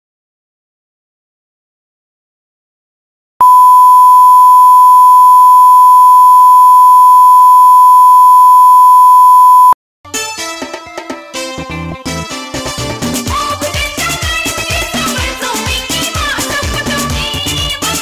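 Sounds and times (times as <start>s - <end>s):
steady pure test tone beep: 3.4s - 9.8s.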